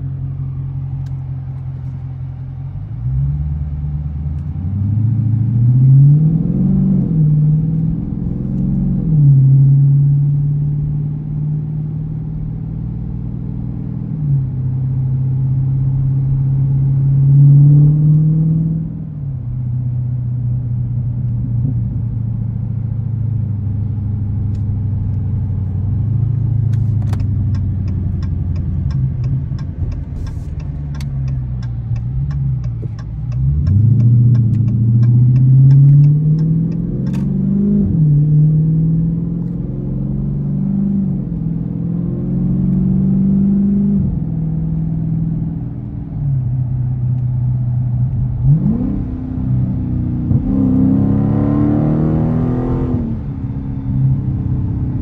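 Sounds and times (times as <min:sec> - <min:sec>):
car engine accelerating and shifting: 0:00.0 - 0:55.0
light ticks: 0:26.7 - 0:37.3.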